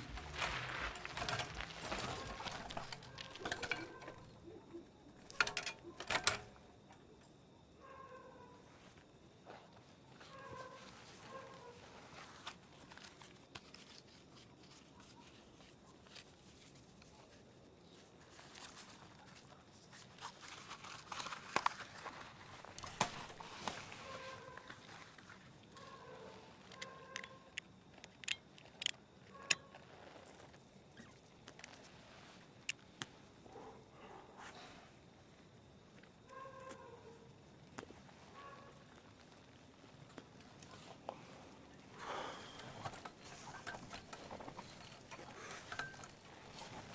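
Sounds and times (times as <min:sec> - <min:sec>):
faint animal call: 0:07.8 - 0:12.3, 0:23.6 - 0:25.1, 0:36.2 - 0:37.3.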